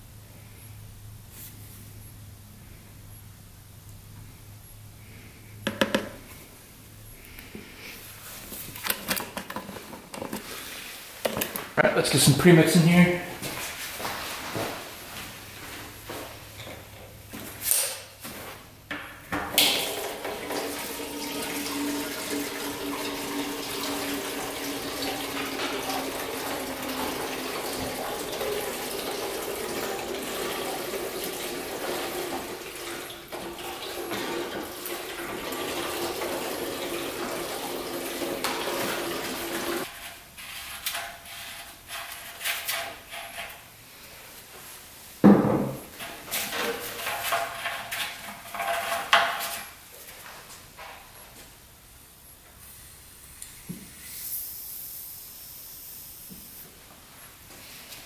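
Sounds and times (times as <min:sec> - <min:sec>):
fuel gurgling into tank: 0:19.8 - 0:39.8.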